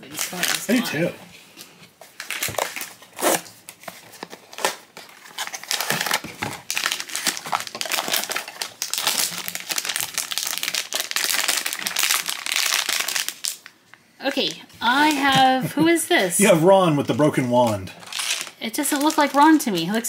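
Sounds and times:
foil wrapper crinkling: 0:00.1 - 0:01.1, 0:02.0 - 0:13.7, 0:17.6 - 0:20.0.

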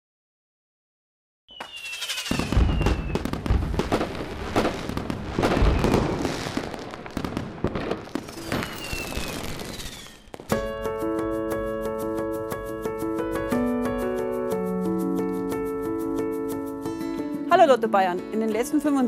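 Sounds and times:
falling firework whistles: 0:01.5 - 0:10.6
fireworks bangs and crackling: 0:01.5 - 0:10.7.

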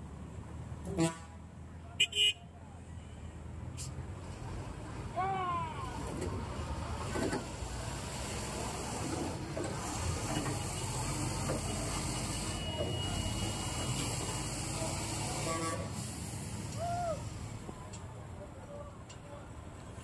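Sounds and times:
diesel engine running: 0:05.9 - 0:17.8.

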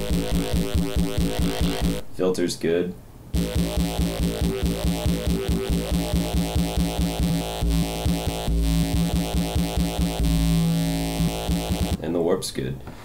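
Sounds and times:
pulsing synth growl bass: 0:00.0 - 0:02.0, 0:03.4 - 0:12.0.

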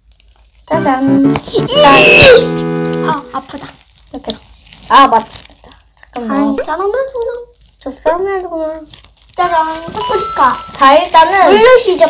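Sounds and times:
comic music sting: 0:00.7 - 0:03.4.

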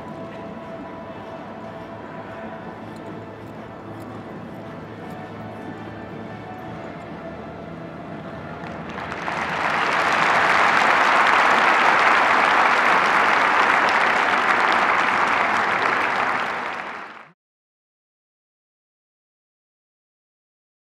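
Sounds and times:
large audience applauding: 0:08.6 - 0:17.4.

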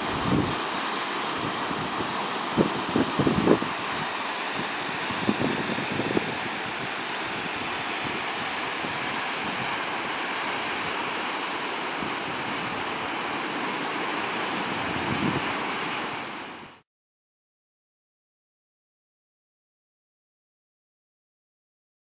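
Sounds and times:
wind buffeting microphone: 0:00.0 - 0:00.6, 0:01.4 - 0:11.1, 0:14.6 - 0:16.8
mountain stream and waterfall rushing: 0:00.0 - 0:16.8.

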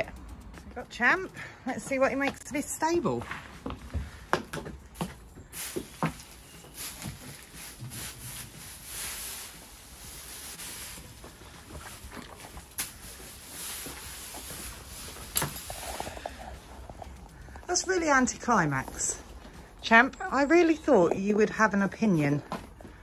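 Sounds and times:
rustling of hay and straw: 0:05.0 - 0:20.0.

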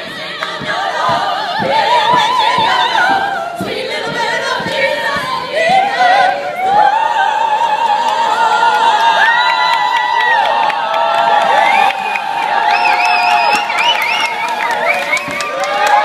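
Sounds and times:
women singing classical style: 0:00.0 - 0:09.8.

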